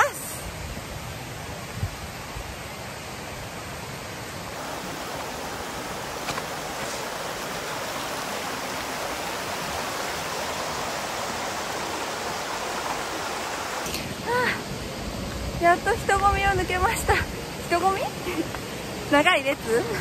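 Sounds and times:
stream flowing over rocks: 4.5 - 14.3.

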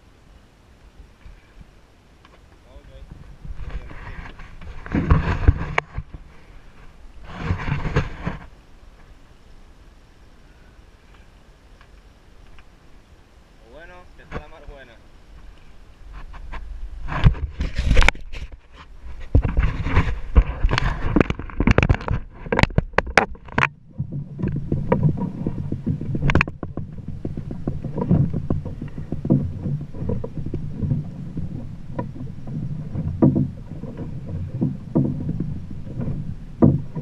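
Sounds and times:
water slapping boat hull: 17.0 - 37.0
loud knocks and rumble: 22.6 - 37.0.

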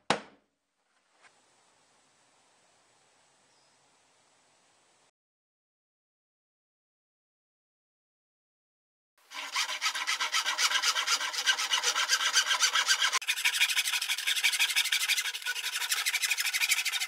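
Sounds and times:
hand saw cutting plastic pipe: 9.3 - 17.0.

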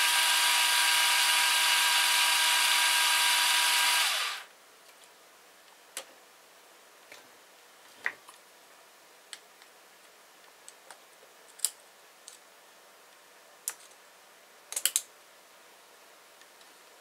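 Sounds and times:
small tools clicking and tapping: 14.7 - 15.1.

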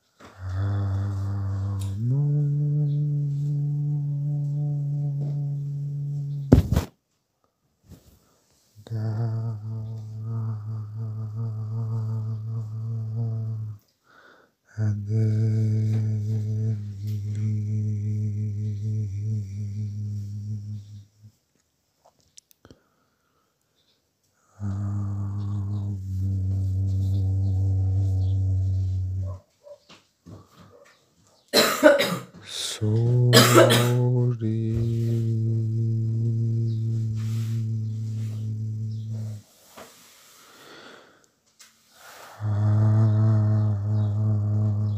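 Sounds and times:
man humming low tone: 0.0 - 6.8, 8.8 - 13.9, 14.7 - 21.3, 24.4 - 29.4, 32.4 - 39.8, 42.0 - 44.9
person coughing hard: 31.5 - 32.4, 33.3 - 34.1.

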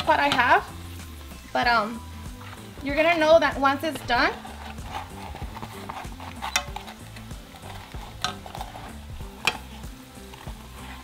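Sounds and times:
frying in hot oil: 0.0 - 11.0
metal tongs clicking on pan: 6.4 - 7.3, 9.3 - 10.4.

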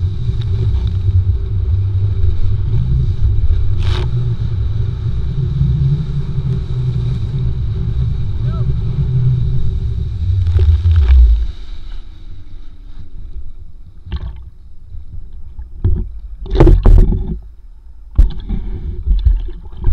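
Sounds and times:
wind buffeting microphone: 0.0 - 11.9
water sloshing and splashing: 10.2 - 11.8, 18.2 - 19.9.

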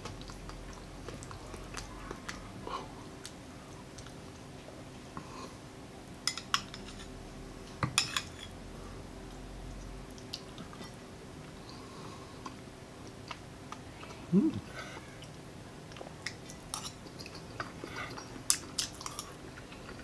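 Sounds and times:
short rising vocal sound: 14.3 - 14.8.

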